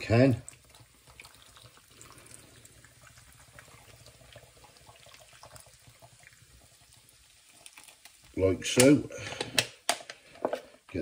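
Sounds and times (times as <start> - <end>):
liquid trickling from can: 0.4 - 8.4.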